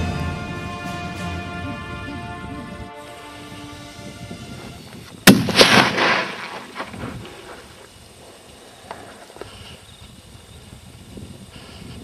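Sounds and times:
rolling echo off hillsides: 0:00.0 - 0:11.5
rifle shot: 0:05.2 - 0:07.0.

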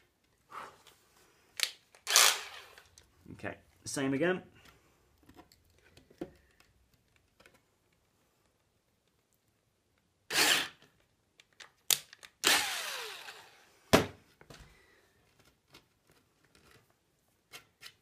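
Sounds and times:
cordless drill whirring: 0:02.0 - 0:02.9, 0:10.3 - 0:10.8, 0:12.4 - 0:13.7.

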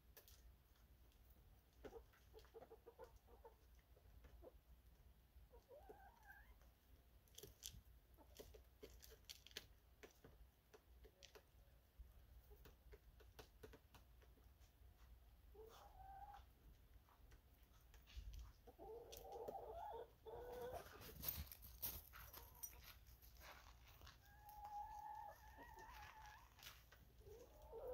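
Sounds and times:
hens clucking: 0:01.8 - 0:04.6, 0:05.4 - 0:06.7, 0:15.4 - 0:21.2, 0:24.2 - 0:27.9.

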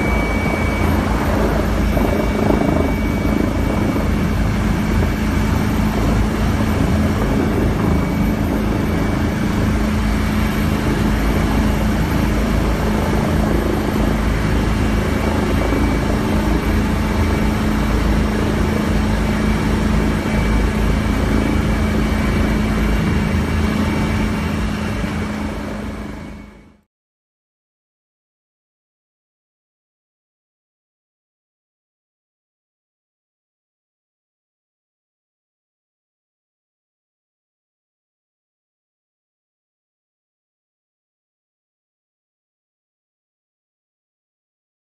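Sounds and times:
helicopter rotor and engine whine: 0:00.0 - 0:26.9.

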